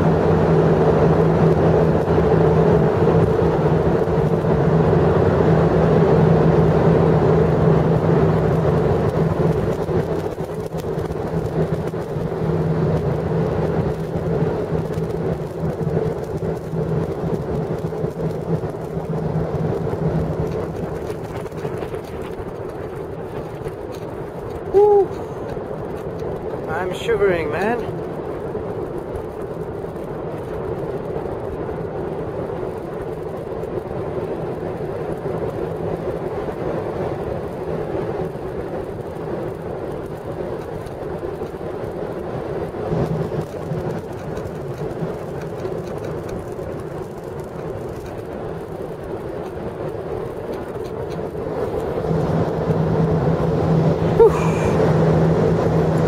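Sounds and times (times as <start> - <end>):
jet engines roaring: 0.0 - 35.6, 40.6 - 56.0
low steady hum: 46.2 - 56.0.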